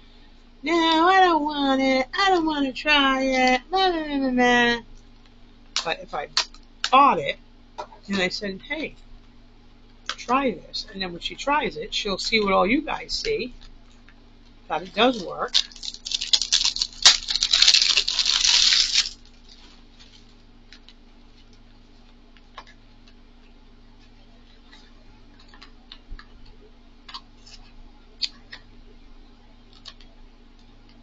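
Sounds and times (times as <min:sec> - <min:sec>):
plastic packaging crinkling: 0:14.8 - 0:21.6.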